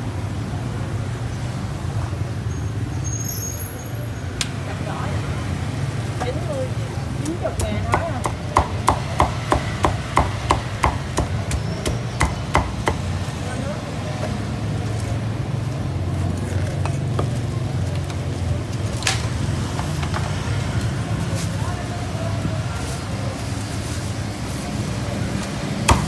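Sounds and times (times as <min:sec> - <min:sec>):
cleaver chopping meat: 0:07.2 - 0:13.3.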